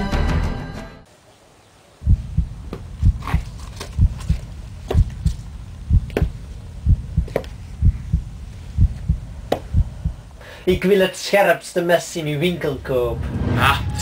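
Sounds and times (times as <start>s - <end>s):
low heartbeat-like thumping: 2.0s - 3.4s, 4.0s - 10.8s.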